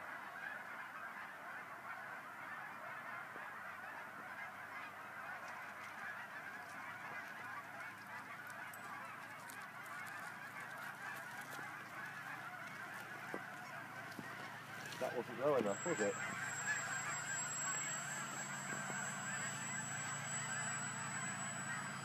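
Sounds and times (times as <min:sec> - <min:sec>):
geese honking: 0:00.0 - 0:22.0.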